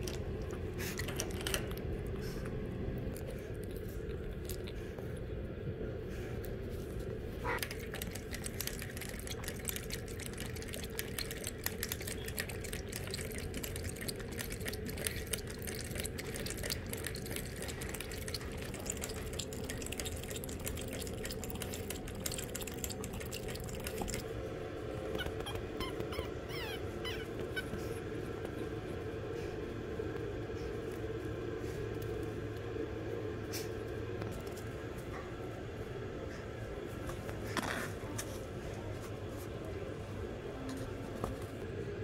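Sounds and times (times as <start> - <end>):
puppies licking water bottle nozzle: 0.0 - 5.3, 7.4 - 24.4
steady low hum: 0.0 - 42.0.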